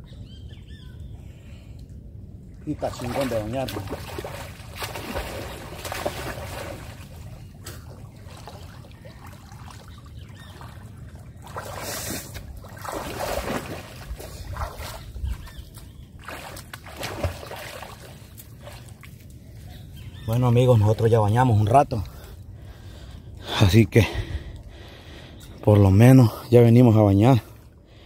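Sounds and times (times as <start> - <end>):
people splashing in river water: 2.7 - 19.3.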